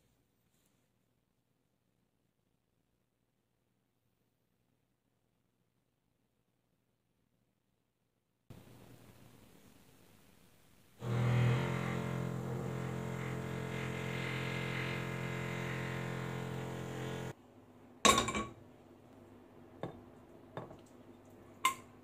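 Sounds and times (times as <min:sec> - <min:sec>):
steady drone of held pitches: 0:11.0 - 0:17.3.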